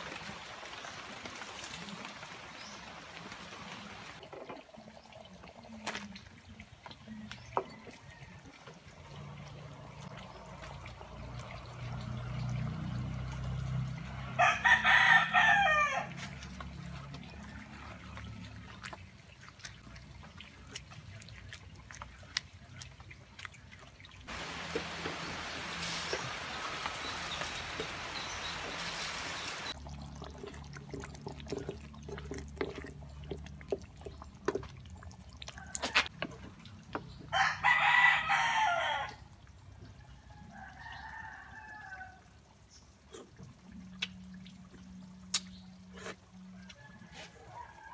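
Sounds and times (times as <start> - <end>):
rooster crowing: 14.4 - 16.2, 37.3 - 39.2, 46.6 - 47.9
steady hiss: 24.3 - 29.7.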